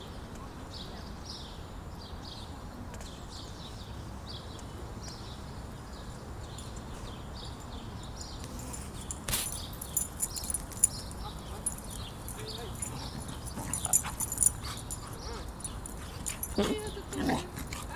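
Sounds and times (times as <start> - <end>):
small birds chirping: 0.0 - 17.9
metallic ticks and jingles: 6.4 - 17.9.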